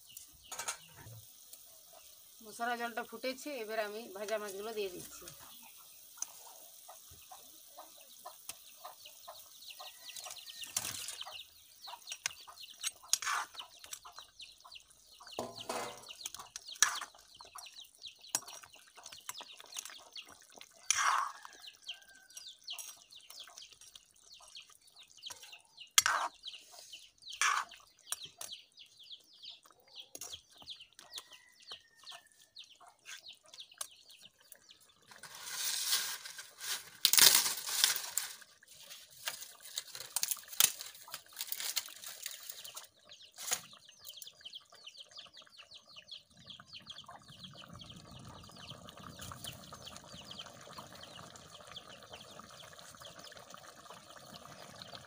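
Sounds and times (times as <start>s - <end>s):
curry bubbling and crackling: 0.0s - 55.0s
ladle clacking against pan: 15.4s - 17.1s
dry leaves rustling: 35.2s - 42.7s.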